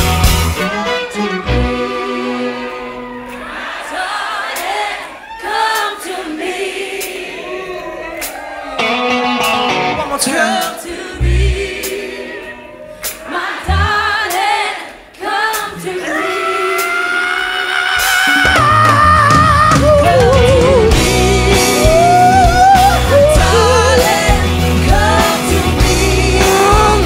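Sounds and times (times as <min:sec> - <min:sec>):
low bass notes: 0:00.0 - 0:00.9, 0:11.2 - 0:11.7, 0:13.7 - 0:14.1, 0:18.5 - 0:27.0
singing voices with vibrato: 0:01.6 - 0:09.0, 0:09.7 - 0:27.0.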